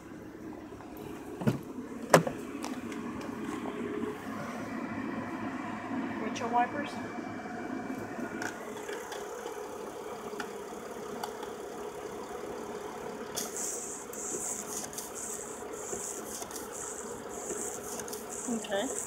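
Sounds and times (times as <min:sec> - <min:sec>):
car engine idling: 0:00.0 - 0:19.0
high pulsing hiss: 0:11.7 - 0:19.0.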